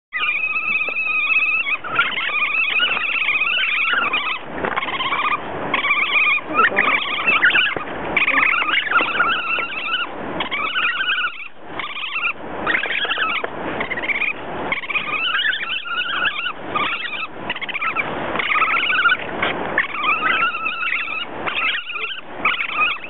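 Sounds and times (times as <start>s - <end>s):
otters calling: 0.1s - 23.0s.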